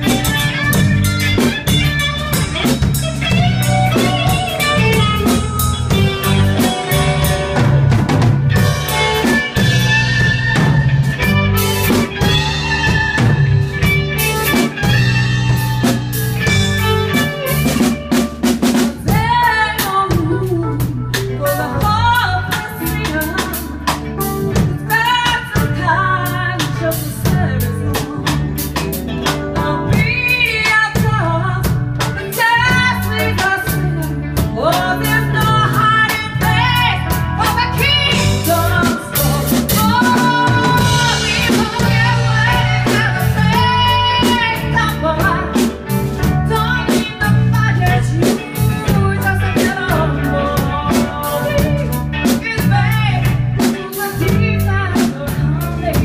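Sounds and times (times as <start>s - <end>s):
drum kit: 0.0s - 56.0s
electric bass: 0.0s - 56.0s
electric guitar: 0.0s - 56.0s
woman singing: 11.6s - 56.0s.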